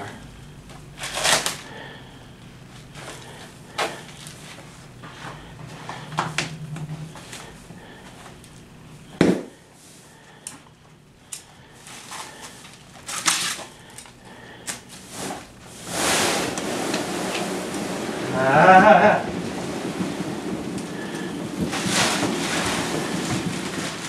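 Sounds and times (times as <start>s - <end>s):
stiff paper crinkling and rustling: 0.2s - 2.0s, 11.7s - 18.2s, 19.3s - 24.0s.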